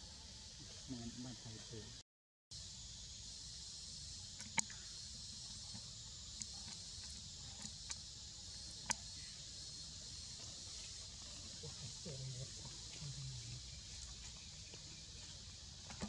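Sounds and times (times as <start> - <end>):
insect chorus: 0.0 - 16.0.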